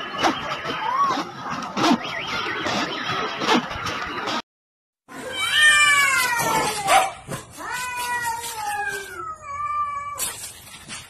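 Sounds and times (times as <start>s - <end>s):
cats yowling: 5.2s - 10.4s.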